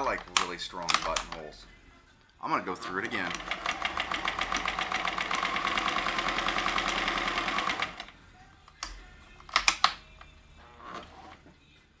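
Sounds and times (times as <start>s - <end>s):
sewing machine stitching: 2.8s - 8.1s
sharp clicks: 8.7s - 10.3s.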